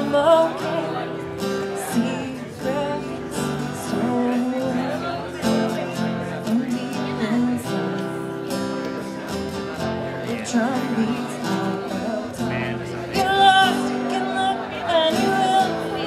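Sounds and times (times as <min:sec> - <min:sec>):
woman singing: 0:00.0 - 0:05.3, 0:06.4 - 0:08.5, 0:10.2 - 0:16.0
acoustic guitar strumming: 0:00.0 - 0:16.0.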